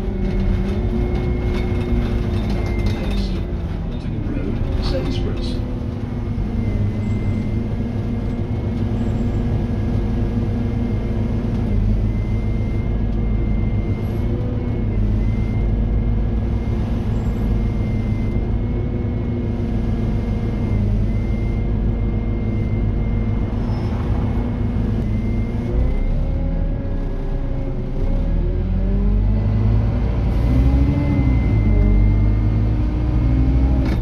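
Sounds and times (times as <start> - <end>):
bus diesel engine droning: 0.0 - 34.0.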